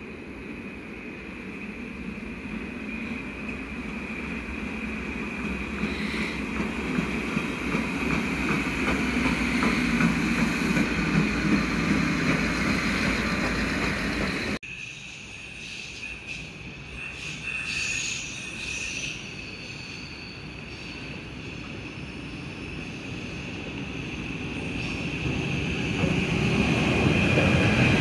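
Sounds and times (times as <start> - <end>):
train wheels clicking on rails: 3.4 - 14.6, 24.3 - 28.0.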